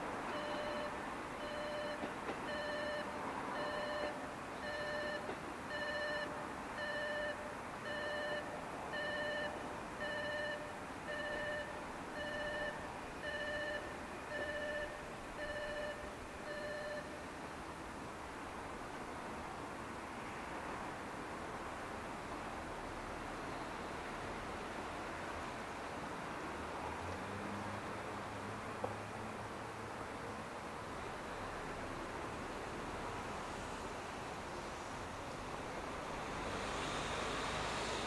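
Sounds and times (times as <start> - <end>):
level crossing warning bell: 0.3 - 17.2.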